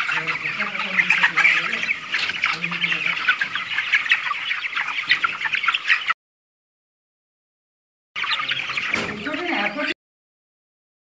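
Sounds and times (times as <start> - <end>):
chicks peeping and chirping: 0.0 - 6.2, 8.2 - 10.0.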